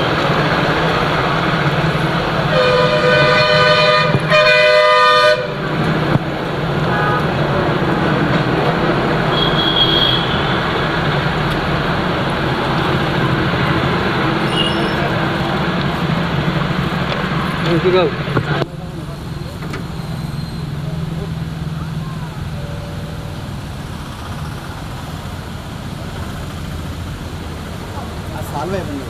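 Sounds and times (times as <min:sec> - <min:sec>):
traffic noise: 0:00.0 - 0:29.0
two-tone vehicle horn: 0:02.5 - 0:05.7, 0:06.8 - 0:07.4, 0:09.3 - 0:10.6, 0:14.5 - 0:15.1.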